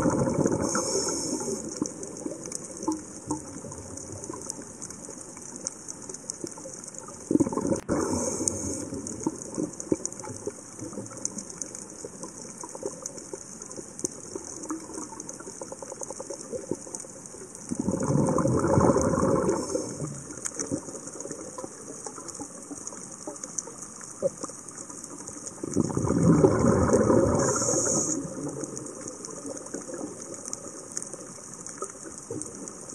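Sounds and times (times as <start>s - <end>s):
steady high hiss: 0.0s - 2.3s, 8.0s - 9.7s, 27.3s - 29.0s
diver's exhaled bubbles rushing: 0.0s - 2.4s, 7.3s - 11.2s, 17.7s - 21.6s, 25.6s - 30.8s
faint clicks: 0.1s - 32.9s.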